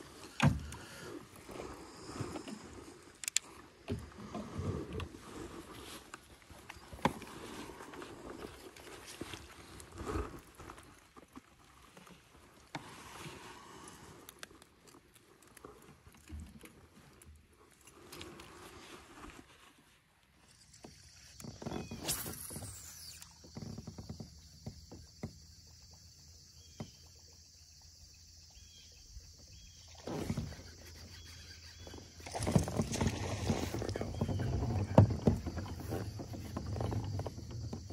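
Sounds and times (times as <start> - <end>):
rush with falling whistle: 21.8 - 23.4
water splashing: 29.9 - 37.9.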